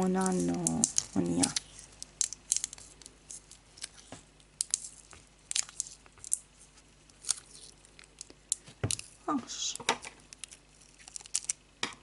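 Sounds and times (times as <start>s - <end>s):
adhesive tape crinkling: 0.0s - 9.3s, 10.0s - 12.0s.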